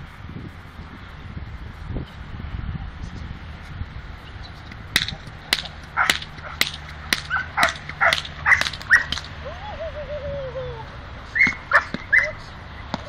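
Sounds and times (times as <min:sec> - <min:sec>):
dog barking sharply: 0:07.3 - 0:09.2, 0:11.7 - 0:12.3.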